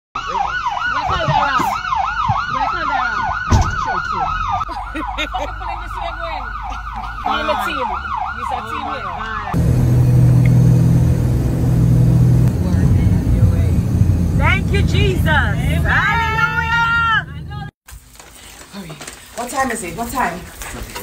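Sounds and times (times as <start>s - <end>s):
police siren yelping: 0.2s - 9.6s
siren wailing: 0.2s - 17.7s
small aircraft engine drone: 9.6s - 15.9s.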